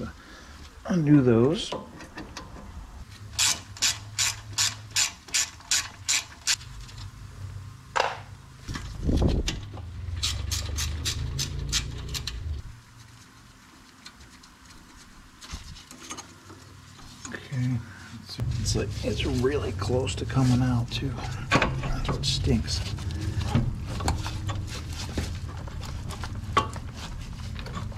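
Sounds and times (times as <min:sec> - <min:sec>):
hand ratchet clicking: 0:03.4 - 0:06.6.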